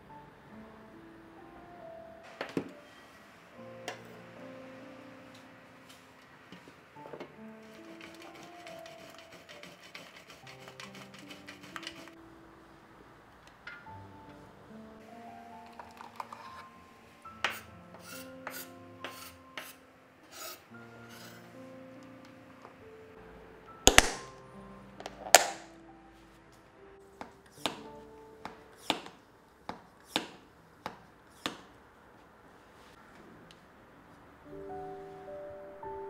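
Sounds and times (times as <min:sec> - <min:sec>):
soft background music: 0:00.0 - 0:31.2, 0:31.9 - 0:36.0
lid snapping shut: 0:25.0 - 0:25.6.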